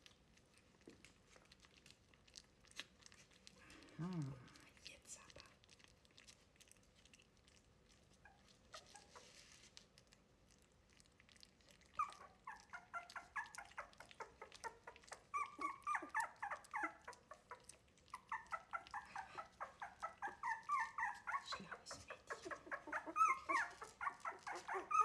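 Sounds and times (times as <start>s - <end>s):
puppies whimpering and squealing: 8.1s - 9.7s, 11.6s - 25.0s.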